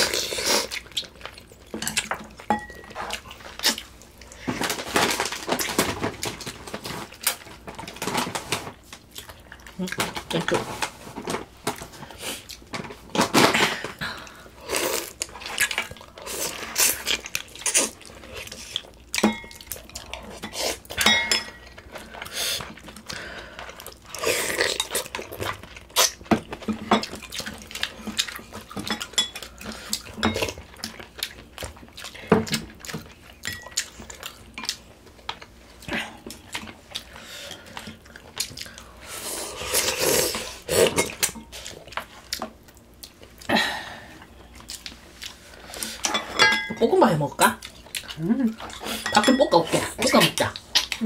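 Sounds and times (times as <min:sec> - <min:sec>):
spoons clinking against bowls: 0:01.8 - 0:03.0, 0:19.2 - 0:19.8, 0:20.4 - 0:21.7, 0:46.1 - 0:46.8, 0:49.0 - 0:49.8
eating noises: 0:47.3 - 0:49.0.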